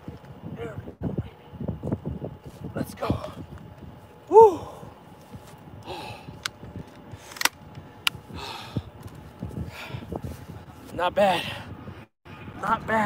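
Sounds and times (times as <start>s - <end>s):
man's high-pitched exclamation: 4.3s - 4.8s
man breathing heavily: 4.3s - 5.1s, 5.7s - 7.3s, 8.2s - 10.6s
sharp clicks: 7.3s - 8.2s.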